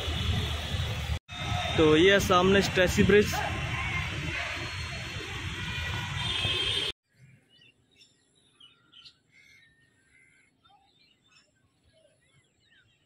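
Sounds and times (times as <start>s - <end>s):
small birds chirping: 7.2s - 13.0s.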